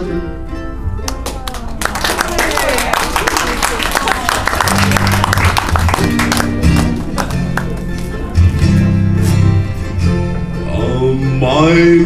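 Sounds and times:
ukuleles and guitar strumming: 4.7 - 12.0.

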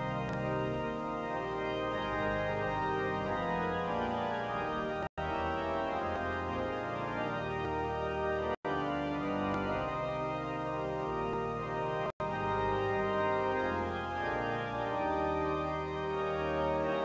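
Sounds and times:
pipe organ playing a hymn: 0.0 - 17.0.

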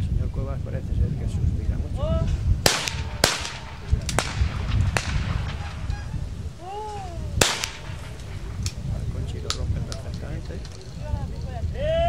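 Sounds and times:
shotgun shots: 2.6 - 6.3, 7.4 - 9.6
person calling out: 6.6 - 7.4.

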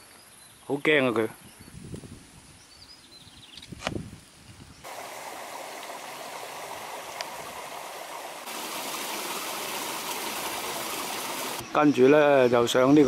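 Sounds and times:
stream water rushing: 4.9 - 11.6.

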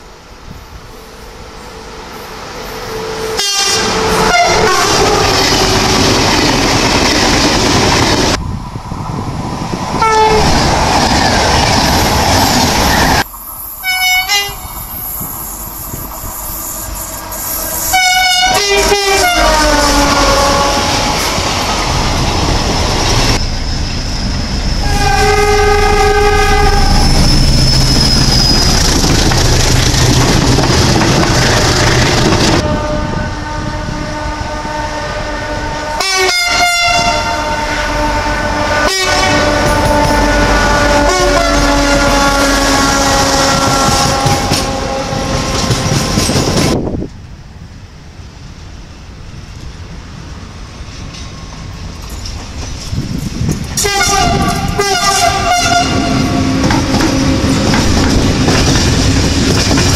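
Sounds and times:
trains rumbling on track: 0.0 - 59.9
train air horn blasts: 1.0 - 6.1, 10.0 - 10.5, 13.8 - 14.7, 16.6 - 21.3, 24.8 - 27.5, 32.6 - 46.2, 53.8 - 57.7.

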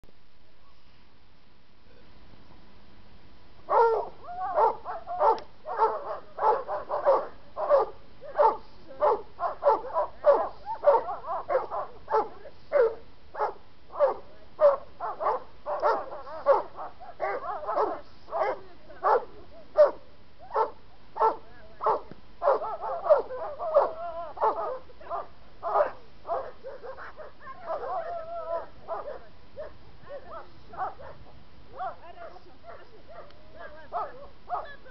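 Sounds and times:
large dog barking: 3.7 - 34.8.

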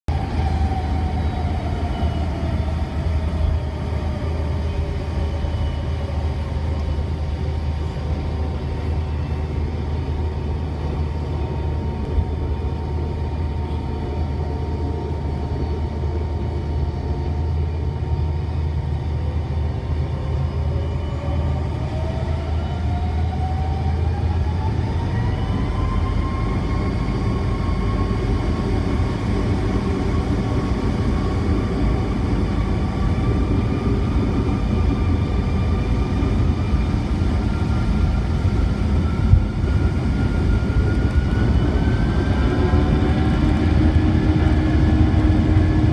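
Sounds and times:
jet engine whine in cabin: 0.1 - 45.9
low cabin rumble: 24.7 - 45.9.

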